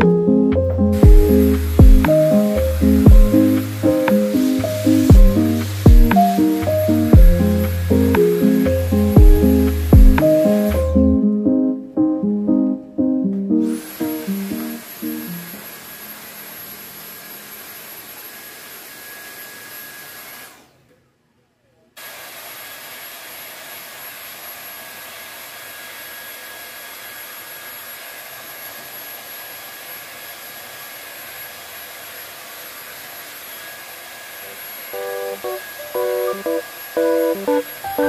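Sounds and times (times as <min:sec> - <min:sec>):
stick vacuum whining: 0:00.0 - 0:11.1, 0:13.5 - 0:20.8, 0:27.6 - 0:38.0.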